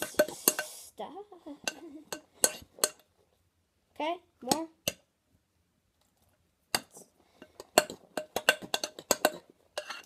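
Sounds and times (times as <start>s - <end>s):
spoon clinking against mixing bowl: 6.8s - 10.0s.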